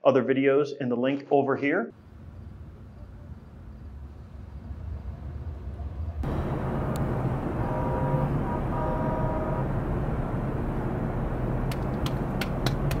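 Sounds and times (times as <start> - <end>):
rumble of passing vehicles: 1.9 - 13.0
pitched tone: 7.4 - 9.8
sharp clicks: 11.7 - 13.0.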